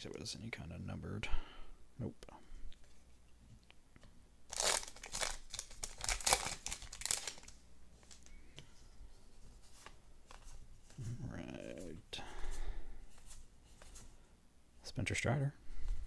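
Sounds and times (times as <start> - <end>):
plastic wrapper tearing and crinkling: 4.5 - 8.3.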